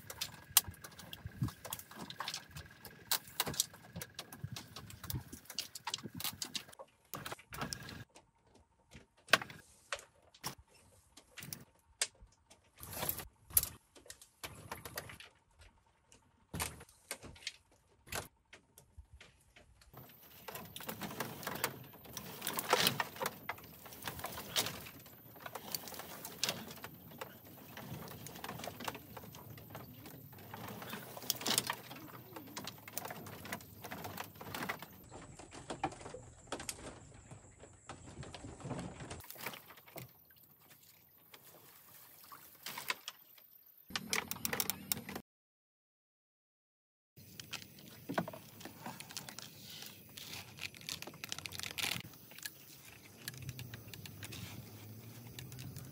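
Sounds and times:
dry brushwood crackling: 0.0s - 8.0s, 19.9s - 40.2s, 47.2s - 55.9s.

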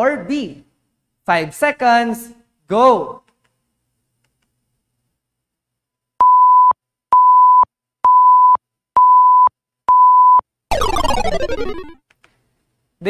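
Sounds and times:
countdown beeps: 6.2s - 12.0s
falling sound effect: 10.7s - 12.0s.

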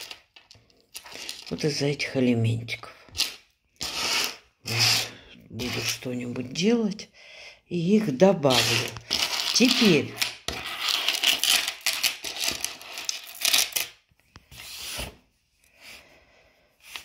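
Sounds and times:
jewellery rustling and rubbing: 0.0s - 1.8s, 8.4s - 13.9s.

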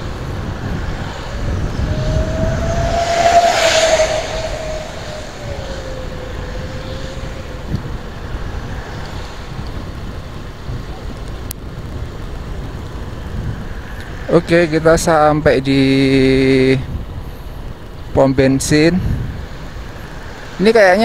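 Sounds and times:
vehicle passing by: 0.0s - 9.6s
road and wind rumble: 0.0s - 21.0s.

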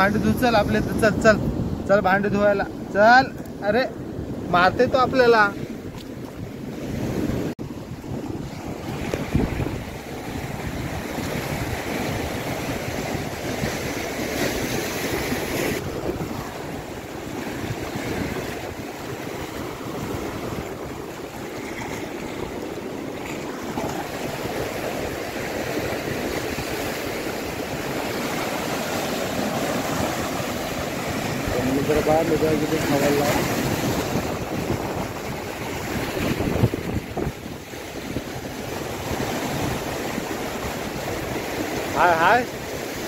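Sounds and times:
wind buffeting microphone: 0.0s - 43.0s
surf breaking on rocks: 7.3s - 43.0s.

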